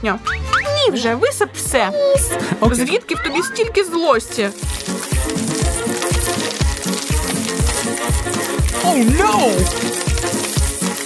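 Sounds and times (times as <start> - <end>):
background music with steady beat: 0.0 - 11.0
dry kibble pouring and clattering: 4.5 - 11.0.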